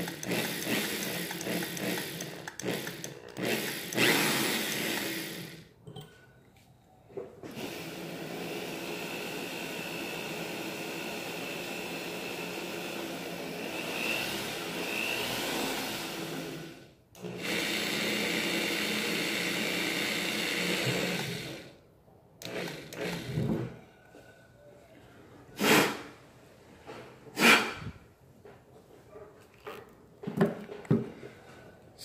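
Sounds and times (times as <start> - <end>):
electric drill running: 0.0 - 5.7, 7.5 - 21.8, 22.4 - 23.7
short loud puffs of noise: 25.6 - 26.2, 27.3 - 28.0.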